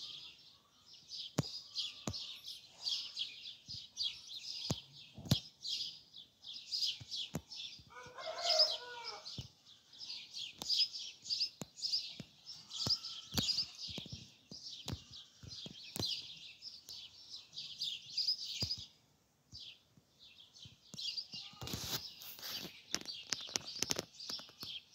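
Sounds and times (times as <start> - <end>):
small birds chirping: 0.0 - 24.9
chicken calling: 7.9 - 9.3.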